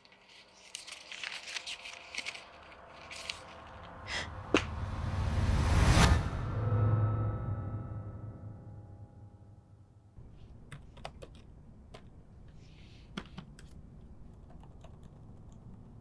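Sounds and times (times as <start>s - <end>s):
typing on laptop keyboard: 10.7s - 12.1s, 13.1s - 16.0s.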